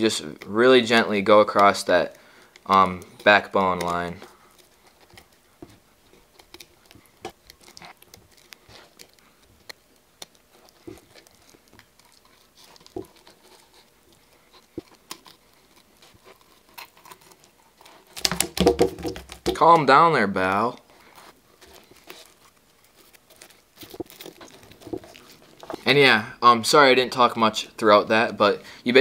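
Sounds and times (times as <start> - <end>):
flurry of knocks: 18.2 - 19.6.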